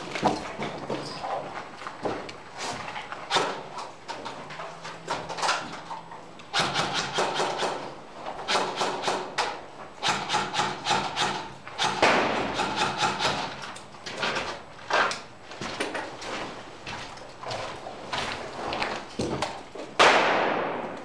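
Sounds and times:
footsteps crunching on concrete: 0:00.0 - 0:03.2, 0:14.0 - 0:20.0.

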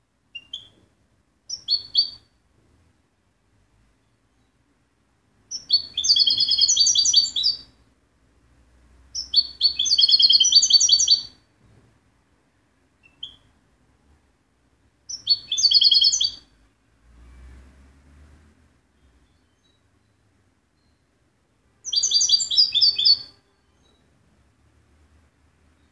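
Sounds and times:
goldfinch trilled song: 0:01.5 - 0:02.2, 0:05.5 - 0:07.7, 0:09.2 - 0:11.4, 0:15.1 - 0:16.4, 0:21.9 - 0:24.0.

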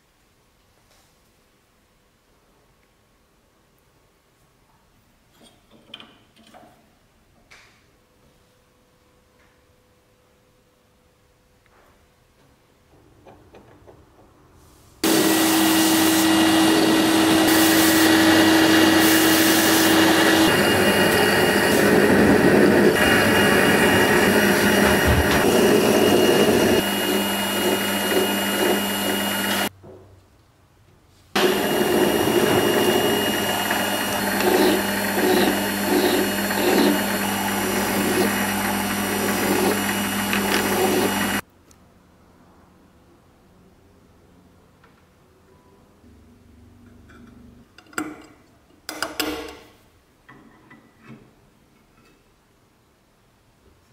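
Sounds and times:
file scraping spinning metal: 0:15.0 - 0:29.7, 0:31.4 - 0:41.4
metal lathe running: 0:15.0 - 0:29.7, 0:31.4 - 0:41.4.

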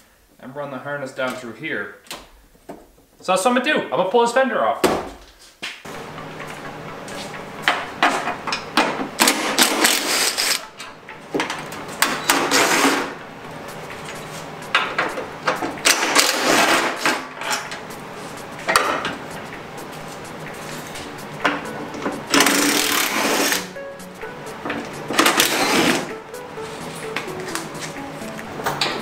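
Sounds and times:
cordless drill running: 0:22.4 - 0:23.7, 0:25.3 - 0:26.1.

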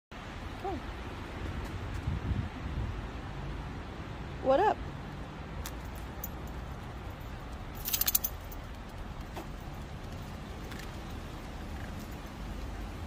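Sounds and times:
dog tags jingling: 0:05.7 - 0:09.0.

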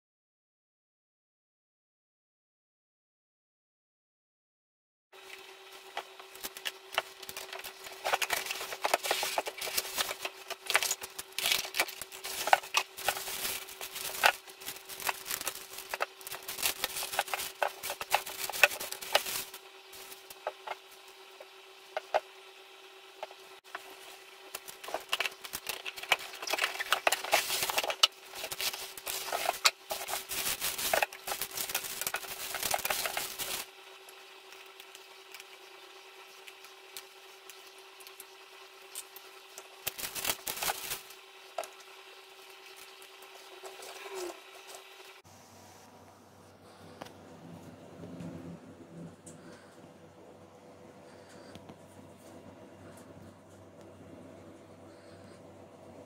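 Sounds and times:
faint steady hum: 0:05.2 - 0:56.0
packaging rustling and crinkling: 0:06.0 - 0:21.1, 0:23.8 - 0:33.7, 0:39.8 - 0:45.0.

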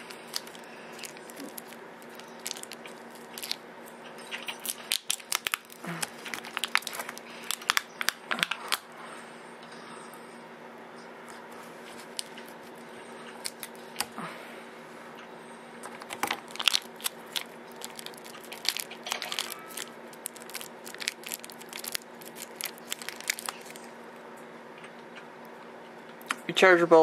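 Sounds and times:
foil and plastic wrapping crinkling: 0:00.0 - 0:08.8, 0:11.9 - 0:12.8, 0:13.4 - 0:14.0, 0:16.1 - 0:23.9.

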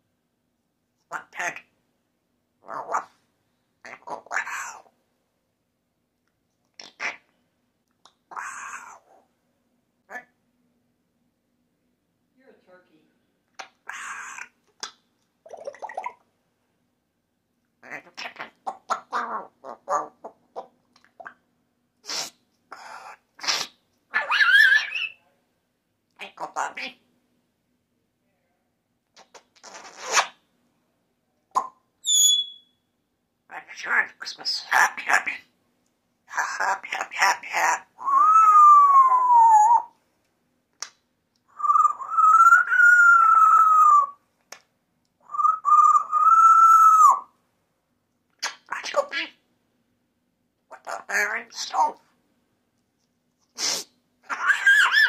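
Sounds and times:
parrot long drawn-out calls: 0:08.3 - 0:09.1, 0:13.8 - 0:14.6, 0:22.1 - 0:25.2, 0:36.3 - 0:39.9, 0:41.5 - 0:44.2, 0:45.2 - 0:47.3
parrot mumbled chatter: 0:13.6 - 0:14.5, 0:17.8 - 0:21.4, 0:22.1 - 0:25.1
parrot breathy noises: 0:22.0 - 0:23.8
parrot whistle-like call: 0:32.0 - 0:32.8, 0:41.6 - 0:44.2, 0:45.2 - 0:47.3.

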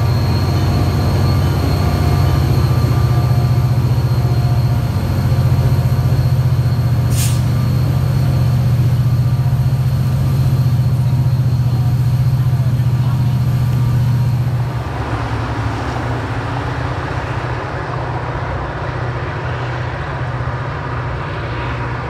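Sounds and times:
diesel locomotive rumbling: 0:00.0 - 0:22.0
short hiss: 0:07.1 - 0:07.5.

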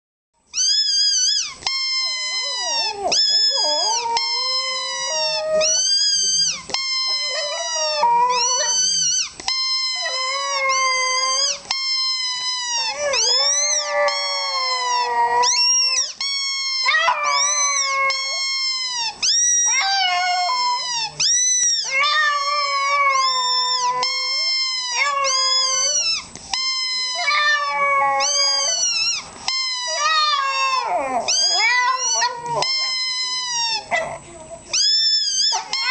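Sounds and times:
dog howling: 0:02.0 - 0:11.6, 0:12.3 - 0:16.2, 0:16.8 - 0:26.3, 0:27.0 - 0:34.2.

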